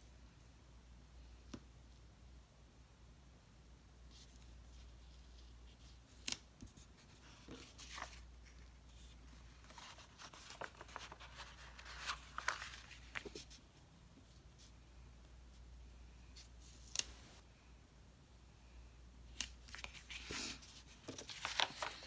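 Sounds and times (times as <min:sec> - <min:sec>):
sticker sheet and paper rustling: 0:04.1 - 0:13.6, 0:19.3 - 0:22.0.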